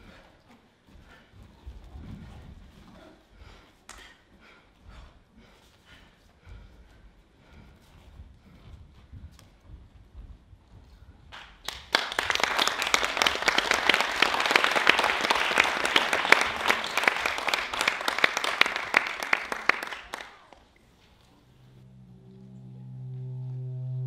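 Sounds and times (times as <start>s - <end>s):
audience applauding: 11.6s - 20.7s.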